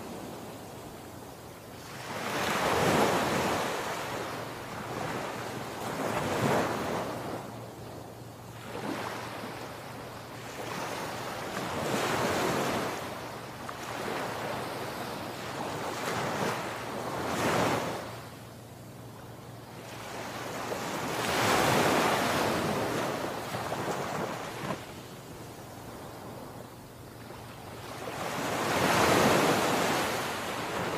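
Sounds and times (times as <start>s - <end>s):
sea waves crashing on beach: 19.6s - 26.6s, 27.3s - 30.9s.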